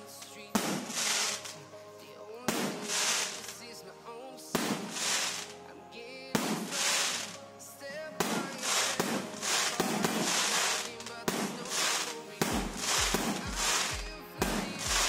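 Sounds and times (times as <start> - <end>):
music: 0.0 - 15.0
firework shells bursting: 0.6 - 1.6, 2.5 - 3.5, 8.2 - 14.0.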